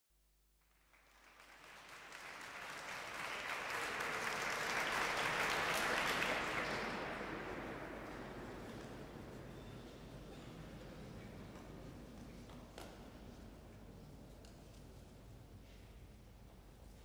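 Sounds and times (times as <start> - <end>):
audience applauding: 0.6 - 10.0.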